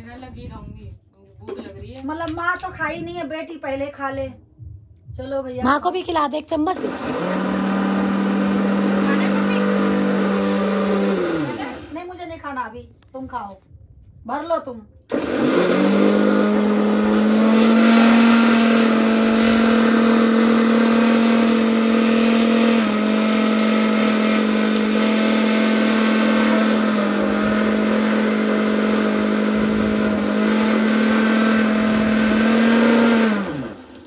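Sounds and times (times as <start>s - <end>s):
mixer grinder motor humming: 6.6s - 12.1s, 15.1s - 34.0s.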